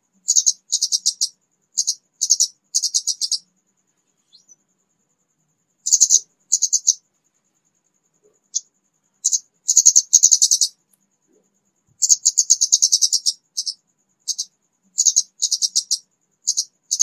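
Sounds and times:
high dry ticking bird call: 0.2s - 3.5s, 5.8s - 7.0s, 8.5s - 10.9s, 12.0s - 17.0s.

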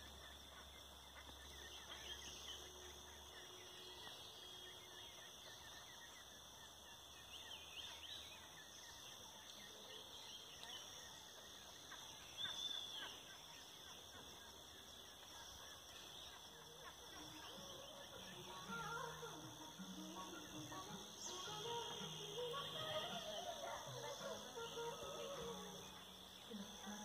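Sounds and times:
high-pitched background hiss: 0.0s - 27.0s
ducks calling: 11.4s - 27.0s.

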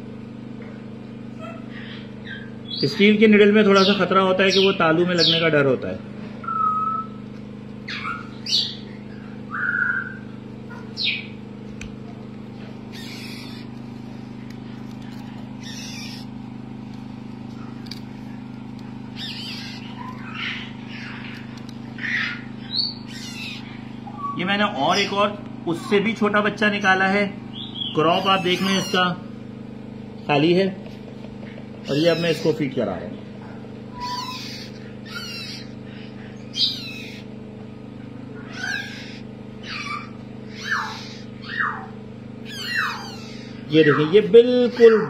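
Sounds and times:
steady low hum: 0.0s - 45.0s
parrot chick calling hoarsely: 7.8s - 11.4s, 12.9s - 13.8s, 15.6s - 16.4s, 19.1s - 25.2s, 27.6s - 29.2s, 31.8s - 32.6s, 33.9s - 37.3s, 38.4s - 44.9s.

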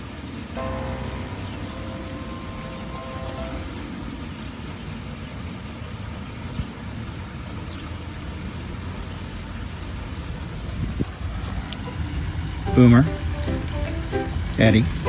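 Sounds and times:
steady low rumble: 0.5s - 5.6s.

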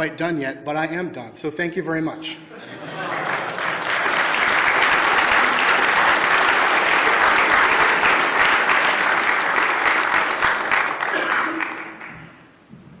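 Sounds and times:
audience applauding: 2.9s - 12.4s.

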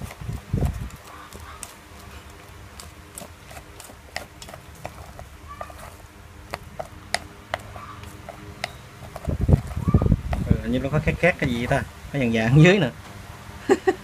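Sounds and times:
utensil stirring rice in a metal pot: 0.0s - 10.6s.

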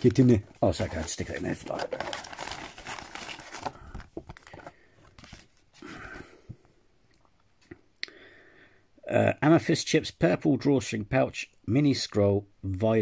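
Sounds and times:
cardboard and paper rustling: 0.0s - 6.2s.

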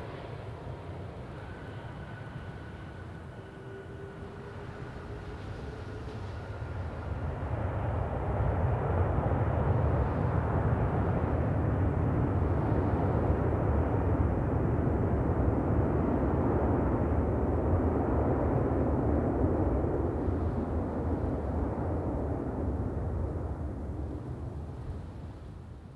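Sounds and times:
faint thin whine: 0.0s - 7.3s
jet engines reverse thrust: 0.0s - 25.4s.

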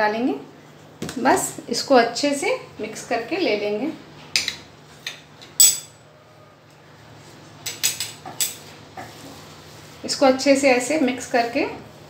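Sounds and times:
spoon clinking on metal plate: 5.6s - 6.0s.

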